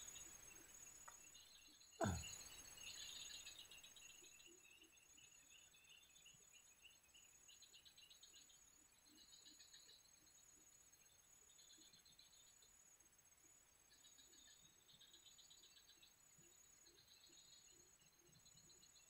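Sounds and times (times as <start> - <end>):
crickets trilling: 0.0 - 13.0
pulsing insect chirr: 0.0 - 19.0.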